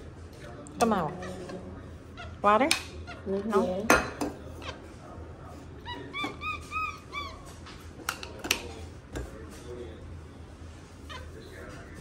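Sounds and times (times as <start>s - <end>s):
monkey chirping calls: 5.9s - 7.4s.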